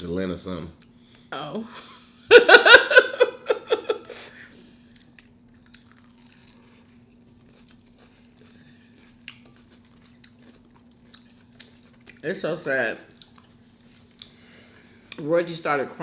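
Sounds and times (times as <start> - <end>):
crunchy food being chewed: 4.8 - 12.4, 13.0 - 15.2.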